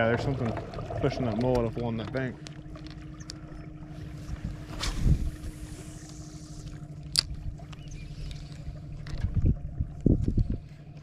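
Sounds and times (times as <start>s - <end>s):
electric trolling motor humming: 0.0s - 11.0s
wind thumps on microphone: 4.4s - 5.5s
fishing rod swishing: 4.6s - 6.6s.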